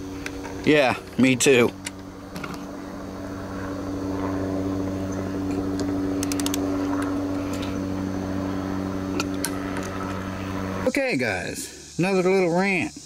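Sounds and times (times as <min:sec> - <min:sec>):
motor humming: 0:00.0 - 0:11.1
torque wrench ratchet clicks: 0:05.8 - 0:07.7.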